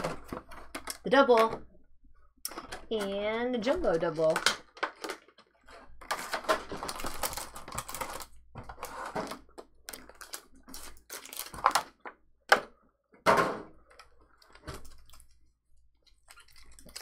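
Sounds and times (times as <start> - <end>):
cards and wrappers rustling: 0.0 - 1.5, 2.5 - 12.1, 13.8 - 15.5.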